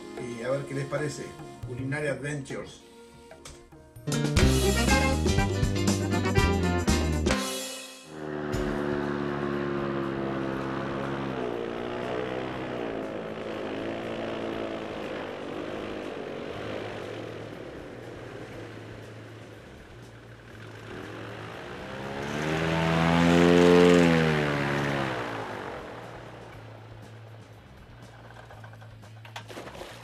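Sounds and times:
airboat engine and propeller: 8.1 - 30.0.

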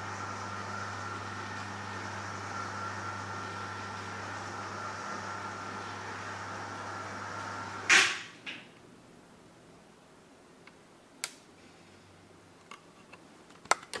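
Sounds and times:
blind motor hum: 0.0 - 8.5.

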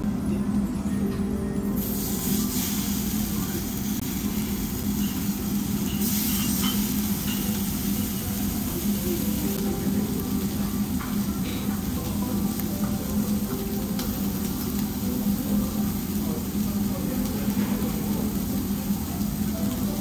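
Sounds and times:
beef sizzling on a grill plate: 1.8 - 20.0.

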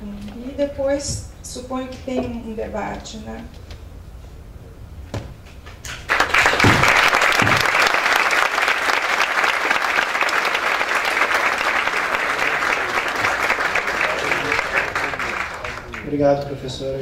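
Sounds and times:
audience applauding: 5.8 - 16.8.

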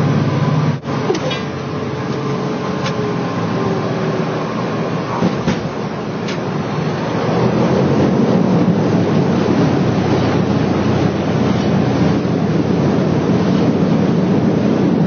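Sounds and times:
airplane engine and propeller drone: 0.0 - 15.0.

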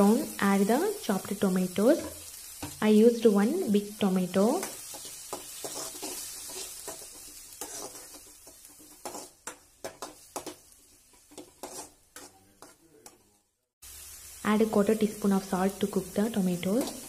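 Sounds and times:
frying sizzle: 0.0 - 17.0
metal ladle scraping a pan: 4.7 - 13.2.

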